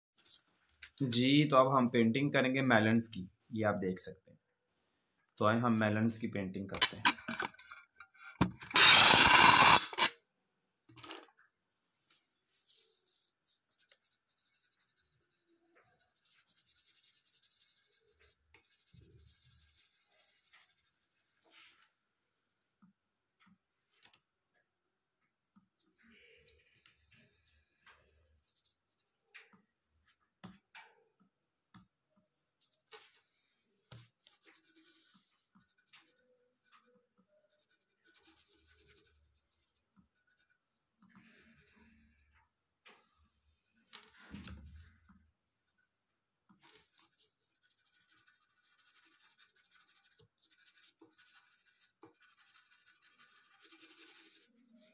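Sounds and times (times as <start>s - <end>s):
pencil scratching on paper: 8.7s - 10.1s, 12.7s - 21.6s, 32.5s - 42.3s, 46.6s - 54.9s.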